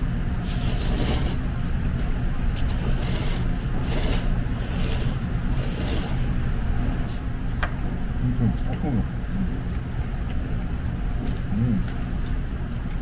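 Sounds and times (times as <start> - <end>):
steady low hum: 0.0 - 13.0
slurping noodles: 0.4 - 1.5, 2.6 - 6.3.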